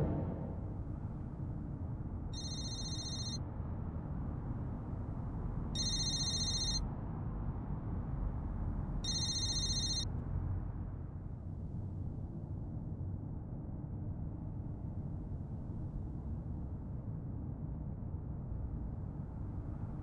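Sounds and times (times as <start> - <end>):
mobile phone ringing: 2.4 - 3.4, 5.8 - 6.8, 9.1 - 10.0.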